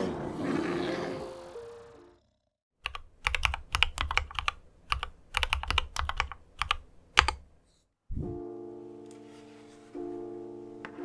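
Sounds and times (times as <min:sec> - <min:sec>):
typing on mechanical keyboard: 0:02.8 - 0:07.4
music with held chord: 0:08.2 - 0:11.0.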